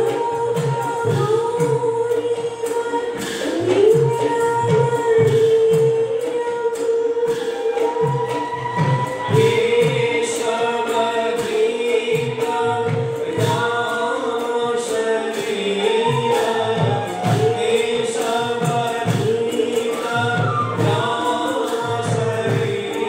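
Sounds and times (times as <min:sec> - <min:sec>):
low percussion strokes: 0:00.0 - 0:23.0
men singing together: 0:07.3 - 0:23.0.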